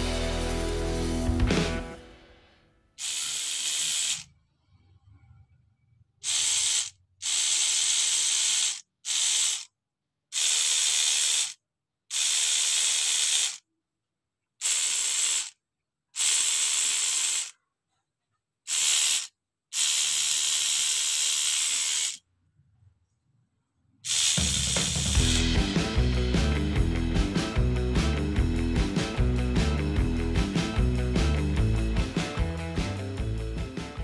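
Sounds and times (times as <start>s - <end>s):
tattoo machine buzzing: 3.0s - 4.3s, 6.2s - 9.7s, 10.4s - 13.6s, 14.6s - 15.6s, 16.2s - 17.5s, 18.7s - 22.2s, 24.1s - 25.5s.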